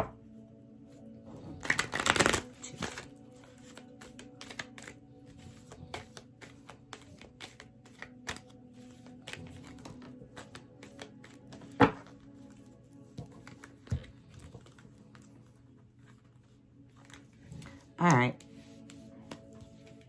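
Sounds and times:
cards being shuffled: 1.4s - 20.0s
cards clicking and tapping: 1.6s - 12.2s.

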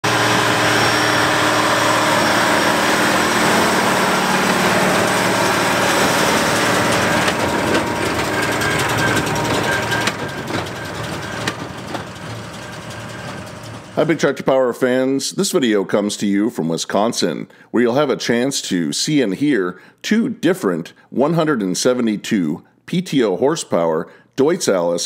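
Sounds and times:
tractor diesel engine under load: 0.0s - 14.4s
baler knocks and clatter: 5.9s - 14.0s.

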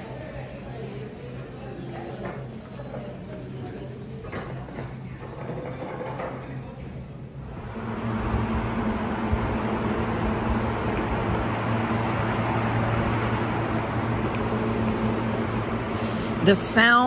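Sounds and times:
low hum: 7.4s - 17.0s
mechanical drone: 7.5s - 16.6s.

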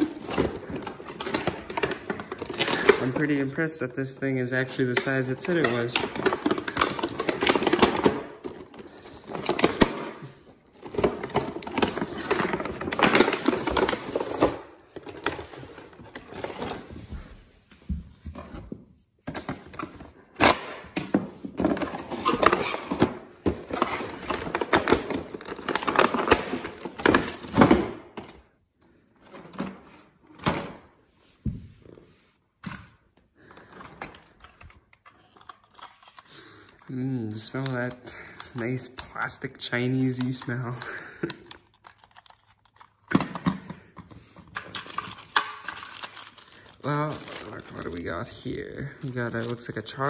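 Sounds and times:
plastic bag crinkling: 0.0s - 16.9s, 44.7s - 50.0s.

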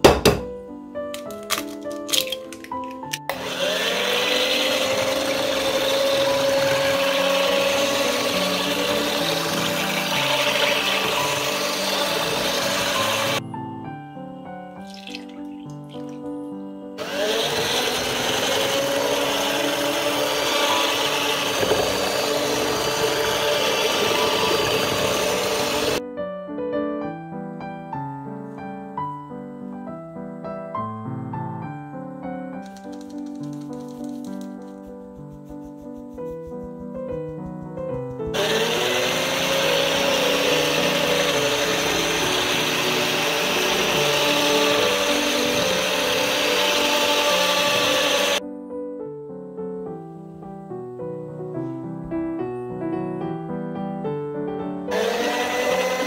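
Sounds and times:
electric hand mixer running: 3.2s - 13.4s, 17.0s - 26.0s, 37.1s - 48.4s, 54.9s - 56.0s
beaters churning batter: 3.3s - 13.4s, 17.0s - 26.0s, 32.8s - 48.4s.

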